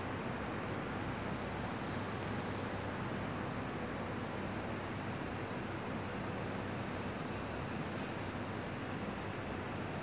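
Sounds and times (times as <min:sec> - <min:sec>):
city background hum at night: 0:00.0 - 0:10.0.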